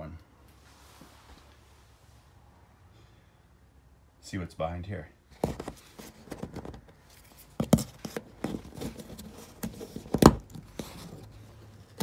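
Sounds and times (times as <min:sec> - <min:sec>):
plastic tool scraping panel: 0:07.6 - 0:12.0.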